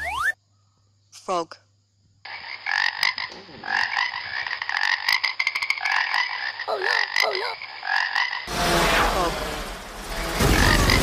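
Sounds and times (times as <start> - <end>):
frogs croaking: 0.0 - 8.5.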